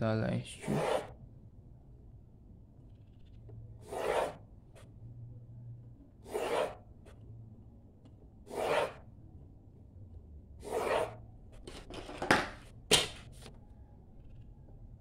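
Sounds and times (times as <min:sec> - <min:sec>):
pencil scratching on paper: 0:00.6 - 0:01.2, 0:02.9 - 0:04.9, 0:06.2 - 0:06.8, 0:08.5 - 0:09.1, 0:10.6 - 0:11.2.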